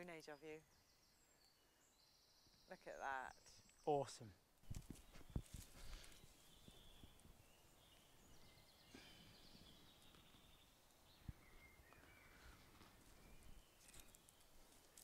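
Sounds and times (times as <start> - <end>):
faint bird calls: 5.1 - 15.0.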